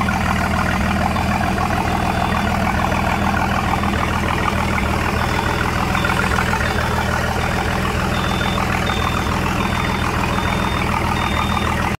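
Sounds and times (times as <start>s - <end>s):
boat engine idling: 0.0s - 12.0s
faint high chirp: 8.0s - 11.8s.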